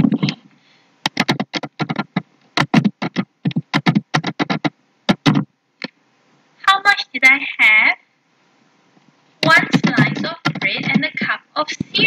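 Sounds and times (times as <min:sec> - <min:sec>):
computer keyboard typing: 0:01.0 - 0:05.4, 0:09.4 - 0:11.3.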